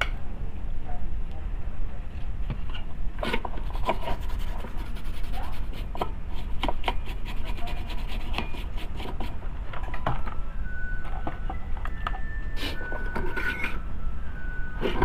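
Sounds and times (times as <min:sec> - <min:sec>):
brush scrubbing circuit board: 0:03.6 - 0:09.4.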